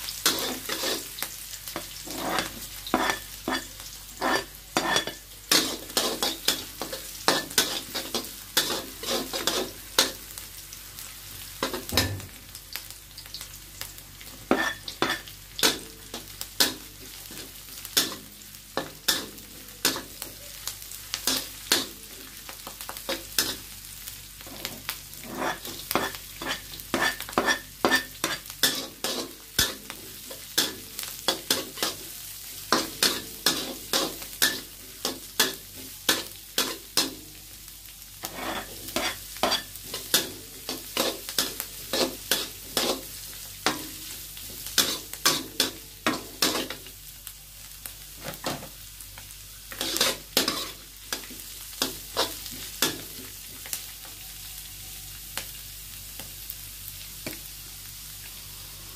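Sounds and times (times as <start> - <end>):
vegetables sizzling in oil: 0.0 - 58.9
spatula scraping wok: 0.1 - 10.4, 14.3 - 22.2, 24.4 - 37.4, 38.2 - 46.8, 49.7 - 53.8.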